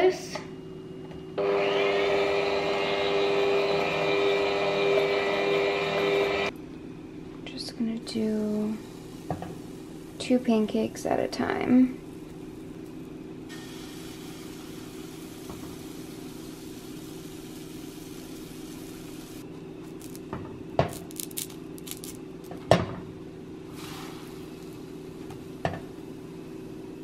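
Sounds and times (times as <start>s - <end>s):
batter sizzling in frying pan: 12.0s - 20.3s, 20.9s - 22.3s, 23.7s - 26.0s.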